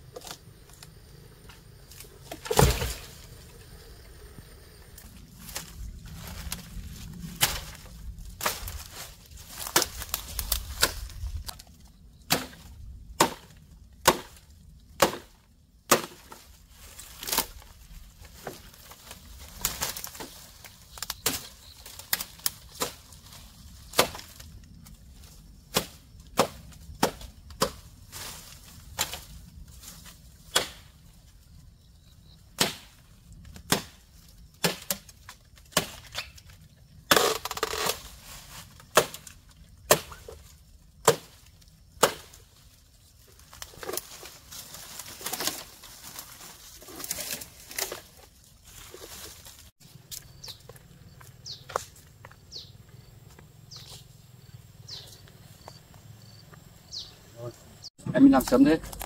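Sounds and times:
wood chopping blows: 2.2s - 3.2s.

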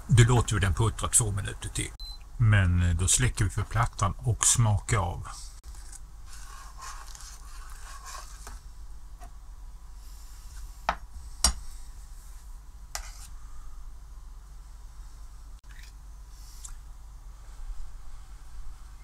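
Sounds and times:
ladle stirring thick soup: 5.7s - 8.6s.

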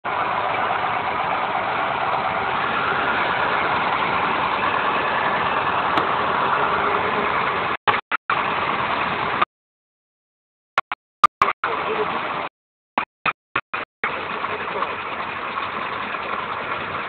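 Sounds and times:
vehicle engine and cab noise: 0.0s - 9.5s, 10.8s - 17.0s.

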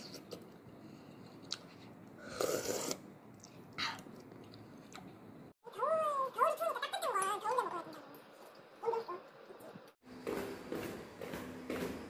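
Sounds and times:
child eating noises: 1.4s - 10.0s.

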